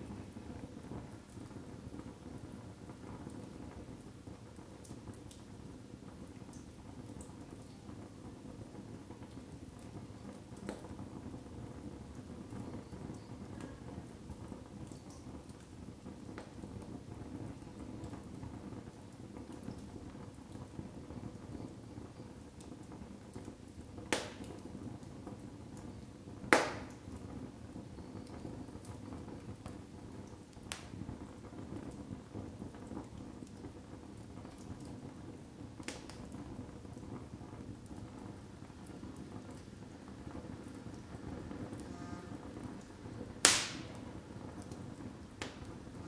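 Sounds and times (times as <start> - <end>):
burning wood popping: 0.0 - 46.0
fire flames rushing: 0.0 - 46.0
wood crackling: 17.4 - 46.0.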